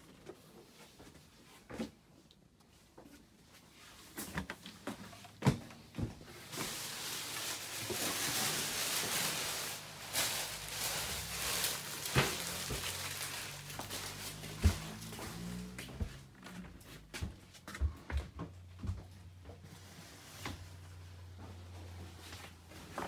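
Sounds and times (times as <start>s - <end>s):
footsteps in wooden cabin: 2.9s - 6.8s, 10.8s - 20.6s
bumps against doors and furniture: 14.4s - 19.6s.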